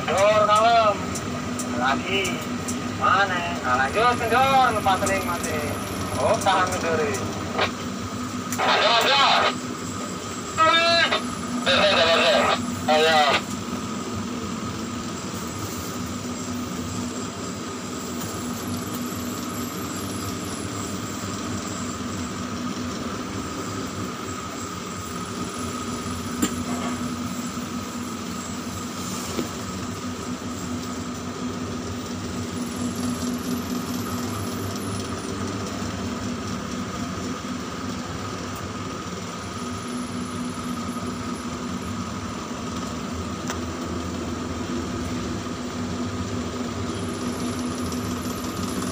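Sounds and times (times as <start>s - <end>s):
crane machinery humming: 0.0s - 48.9s
faint high whine: 1.7s - 35.5s.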